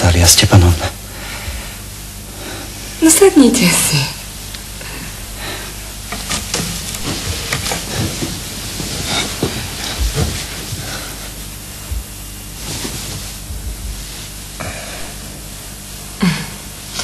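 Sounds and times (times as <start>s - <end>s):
television recording hiss: 0.0s - 17.0s
soft knocks and rustles: 6.2s - 10.9s.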